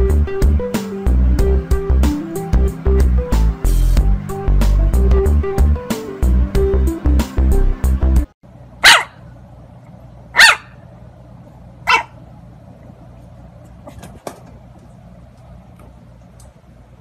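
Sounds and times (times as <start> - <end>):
puppy barking: 8.8 - 9.2, 10.4 - 10.8, 11.8 - 12.2.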